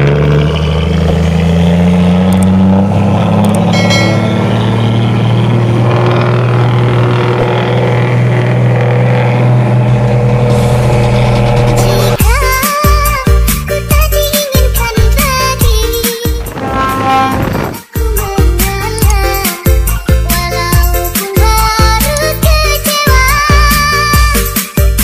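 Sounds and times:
diesel truck engine droning: 0.0s - 25.0s
brief higher-pitched tone: 3.7s - 6.4s, 16.4s - 17.8s.

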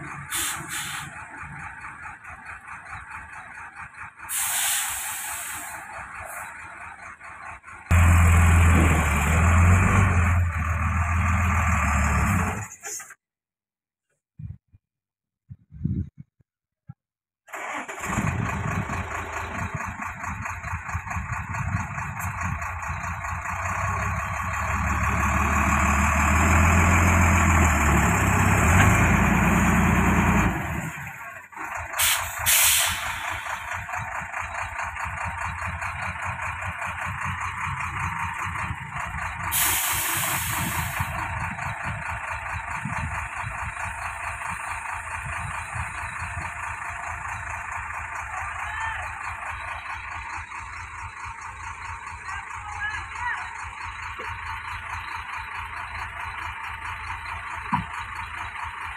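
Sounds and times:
diesel truck engine revving: 0.0s - 12.8s, 17.5s - 58.9s
air brake hisses: 0.3s - 1.2s, 4.3s - 5.9s, 32.0s - 33.7s, 39.5s - 41.1s.

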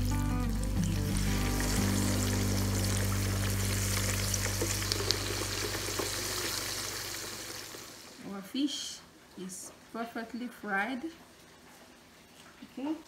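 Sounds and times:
fish deep-frying in oil: 0.0s - 8.9s.

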